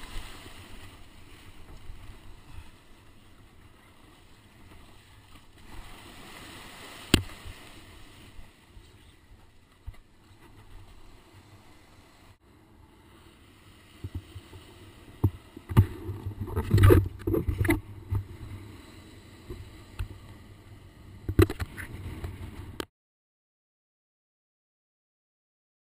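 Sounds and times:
shore-break foam washing: 0.0s - 9.6s
wind rumbling on microphone: 14.0s - 18.7s.

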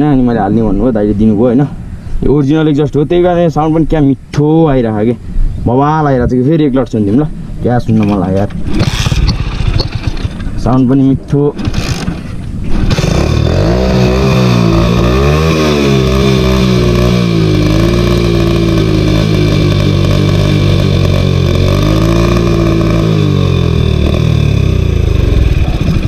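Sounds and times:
motorcycle engine revving: 8.7s - 10.7s, 11.6s - 26.0s.

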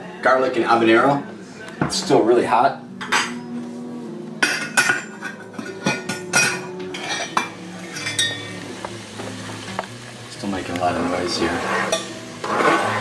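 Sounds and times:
metal lid and utensil clattering: 4.4s - 8.5s.

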